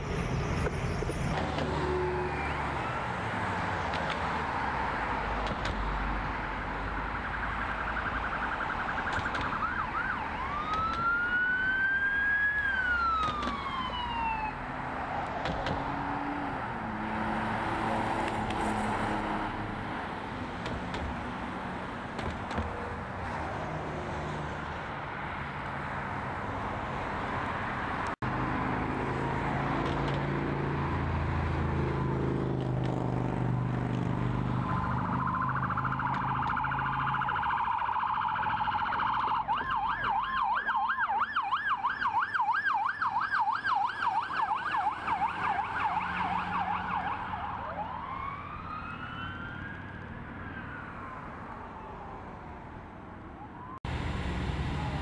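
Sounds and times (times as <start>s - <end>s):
passing road traffic: 0.0s - 55.0s
emergency siren wailing: 1.0s - 5.3s, 6.0s - 20.5s, 34.2s - 55.0s
vehicle engine: 13.0s - 37.4s, 53.6s - 55.0s.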